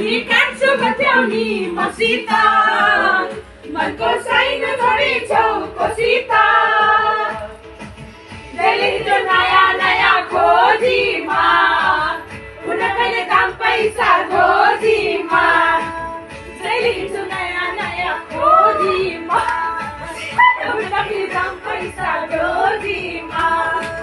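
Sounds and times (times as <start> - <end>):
women singing together: 0.0 - 7.8, 8.5 - 24.0.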